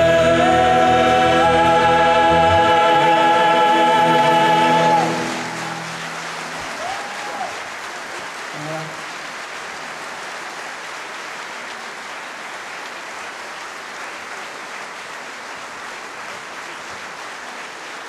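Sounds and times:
audience applauding: 0:03.7 - 0:18.0.

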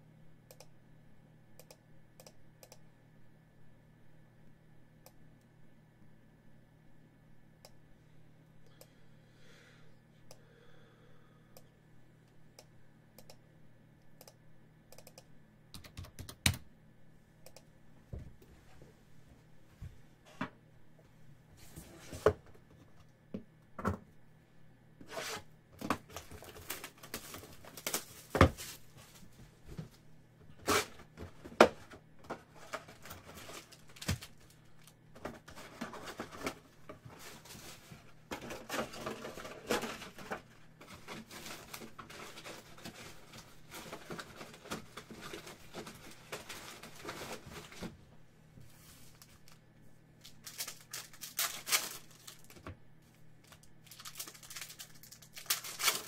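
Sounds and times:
foil wrappers crinkling: 0:26.0 - 0:28.8, 0:32.3 - 0:47.9, 0:50.2 - 0:52.7, 0:53.4 - 0:56.0.

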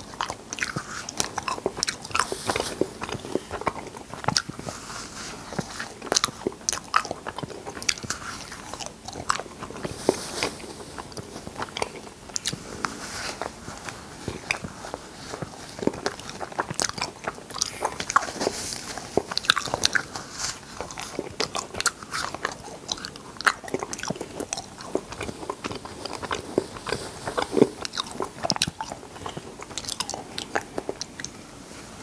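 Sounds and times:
cotton candy crackling: 0:00.0 - 0:31.4.

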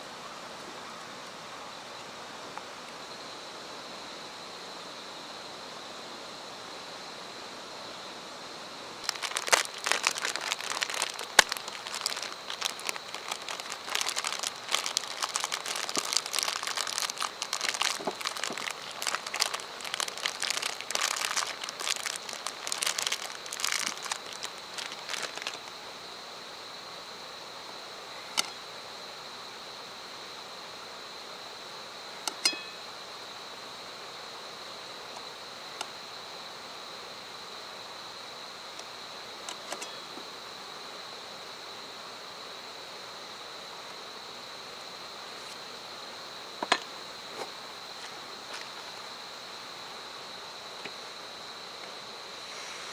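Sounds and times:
plastic packaging crinkling and tearing: 0:09.0 - 0:25.7.

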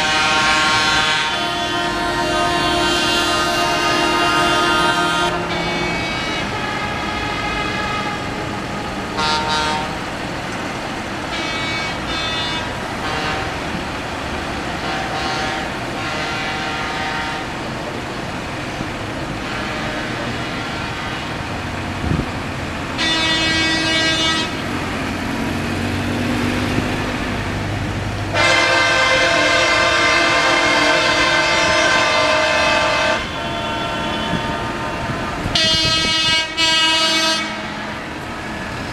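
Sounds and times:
vehicle horns honking: 0:00.0 - 0:10.0, 0:11.3 - 0:13.7, 0:14.8 - 0:17.6, 0:19.4 - 0:21.5, 0:23.0 - 0:24.7, 0:28.3 - 0:38.1
traffic and engine noise: 0:00.0 - 0:38.9.

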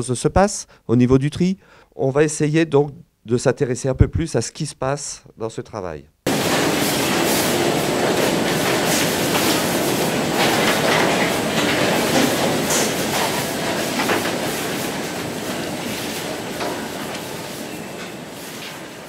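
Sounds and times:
paper and packaging clattering: 0:06.3 - 0:18.8
conveyor machinery running: 0:06.3 - 0:19.0.

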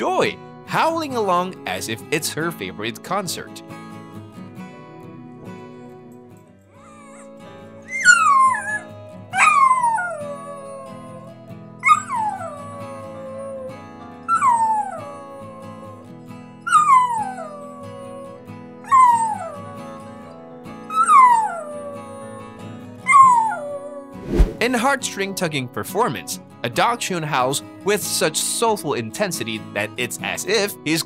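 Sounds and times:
background music: 0:00.0 - 0:31.0
dog howling: 0:06.7 - 0:15.9, 0:16.7 - 0:20.2, 0:20.9 - 0:22.5, 0:23.1 - 0:24.1.

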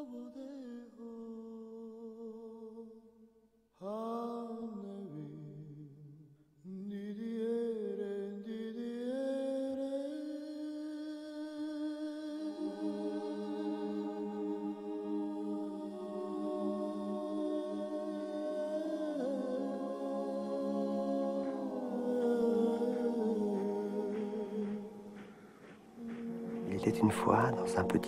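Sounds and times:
voices humming a slow melody: 0:06.7 - 0:28.0.

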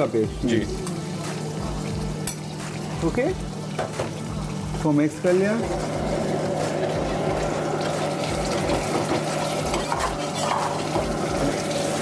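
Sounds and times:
ladle scraping iron wok: 0:08.6 - 0:12.0.

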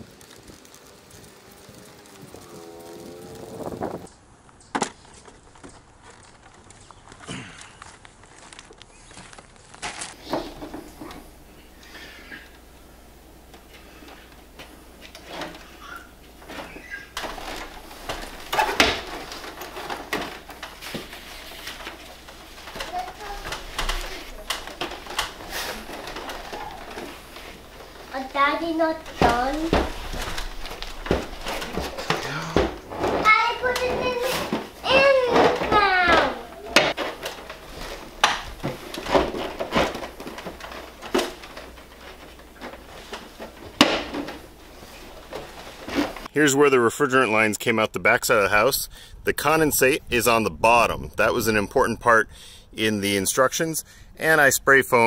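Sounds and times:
plastic unit rustling and scraping: 0:04.8 - 0:12.6, 0:13.4 - 0:46.3.

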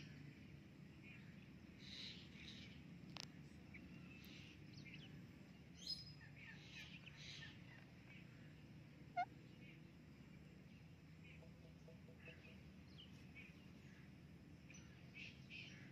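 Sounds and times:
low steady hum: 0:00.0 - 0:15.9
faint bird chirps: 0:03.5 - 0:15.9.

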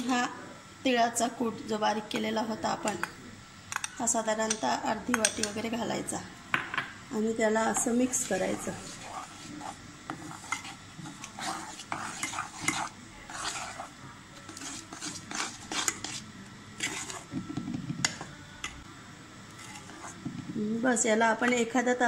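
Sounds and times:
metal spoon scraping metal pot: 0:07.8 - 0:18.2, 0:19.5 - 0:20.2.

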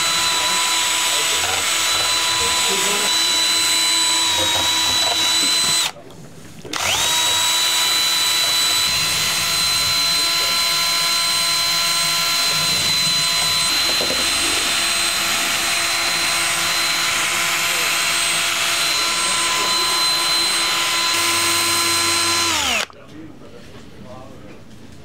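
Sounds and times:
cordless drill motor whining: 0:00.0 - 0:06.0, 0:06.7 - 0:23.0.

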